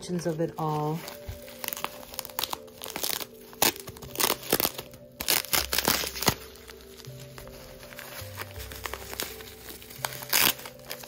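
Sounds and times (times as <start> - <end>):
bubble wrap crinkling: 0.0 - 11.0.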